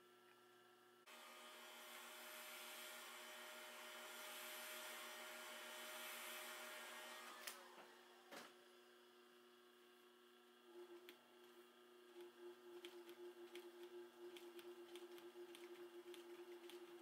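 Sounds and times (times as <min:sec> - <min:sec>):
heat gun blowing air: 0:01.5 - 0:07.6.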